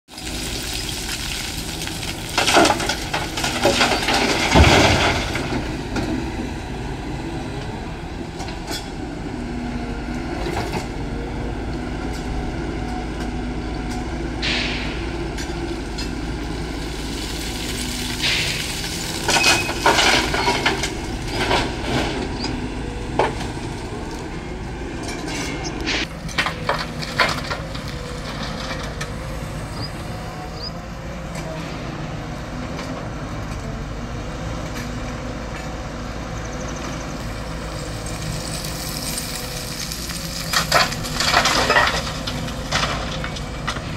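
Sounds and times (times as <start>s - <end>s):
soil dumped into truck: 0.1s - 6.7s, 14.3s - 24.1s, 37.2s - 43.9s
excavator diesel engine running: 0.2s - 43.9s
branches cracking and snapping: 38.3s - 43.9s.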